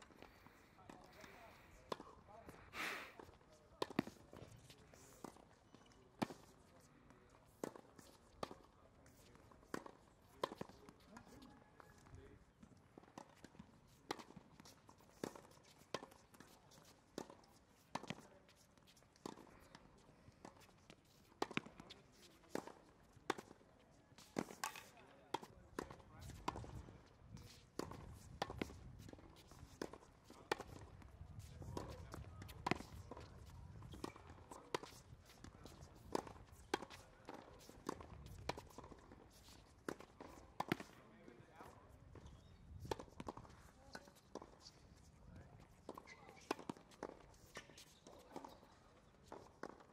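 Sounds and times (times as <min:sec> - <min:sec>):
tennis ball hitting racket: 0:01.9 - 0:02.1, 0:03.2 - 0:06.6, 0:07.5 - 0:11.6, 0:13.0 - 0:19.8, 0:20.4 - 0:23.6, 0:24.2 - 0:41.0, 0:42.8 - 0:44.6, 0:49.2 - 0:49.8.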